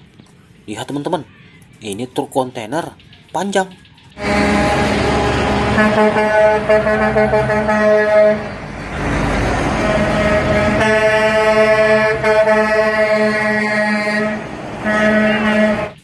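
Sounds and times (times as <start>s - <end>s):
diesel engines rumbling: 0.0s - 16.0s
truck air horn blasts: 4.2s - 8.8s, 9.5s - 16.0s.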